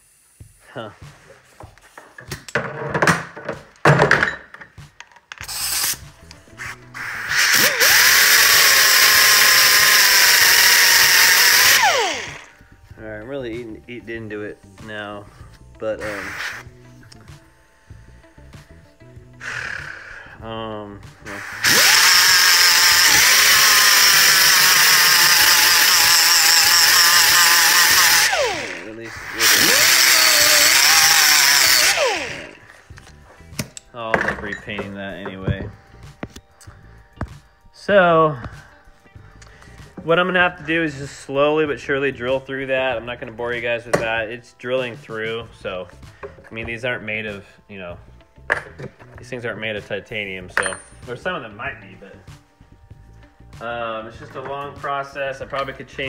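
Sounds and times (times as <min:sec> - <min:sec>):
knocks and handling sounds: 0:01.0 - 0:05.5, 0:32.7 - 0:36.5, 0:48.4 - 0:49.4, 0:50.5 - 0:51.2
angle grinder grinding metal: 0:05.4 - 0:12.5, 0:15.9 - 0:16.8, 0:21.1 - 0:33.2.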